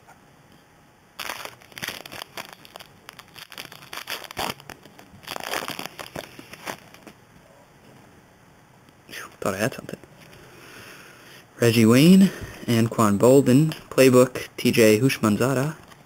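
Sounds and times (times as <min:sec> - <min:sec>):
foil wrapper crinkling and tearing: 0:01.2 - 0:07.2.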